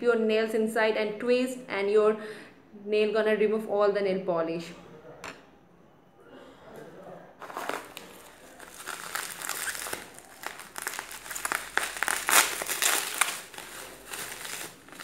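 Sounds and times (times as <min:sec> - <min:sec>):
bubble wrap crinkling and crackling: 0:07.4 - 0:15.0.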